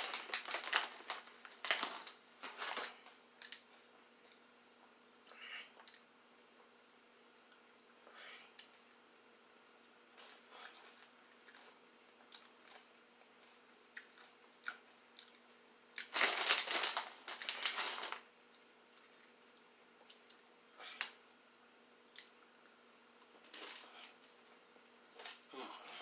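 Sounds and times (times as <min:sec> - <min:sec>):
crunching chips: 0:00.0 - 0:03.6, 0:16.0 - 0:19.3.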